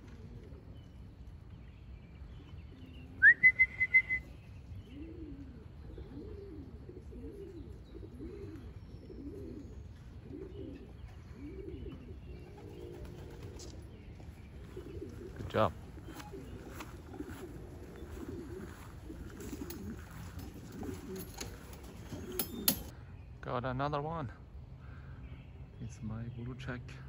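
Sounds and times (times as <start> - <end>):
pigeons cooing: 0.0 - 22.9.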